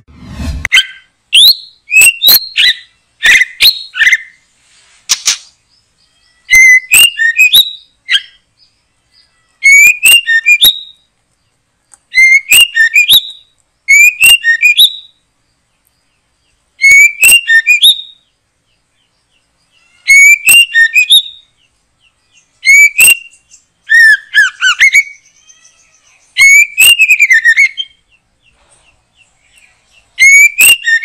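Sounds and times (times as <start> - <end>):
bird singing whistles and clicks: 1.4 - 4.2, 6.5 - 8.4, 9.6 - 11.0, 11.9 - 15.1, 16.8 - 18.1, 20.1 - 21.4, 22.6 - 25.2, 29.6 - 31.0.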